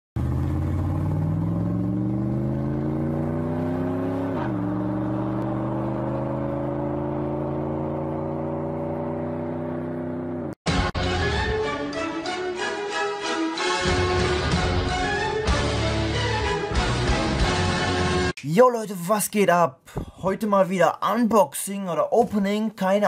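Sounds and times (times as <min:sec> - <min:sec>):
car engine accelerating: 0:00.2 - 0:10.6.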